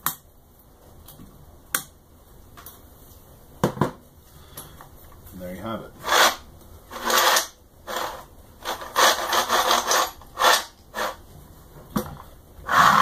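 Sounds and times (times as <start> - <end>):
carriage rasping along rods: 6.0 - 11.2, 12.7 - 13.0.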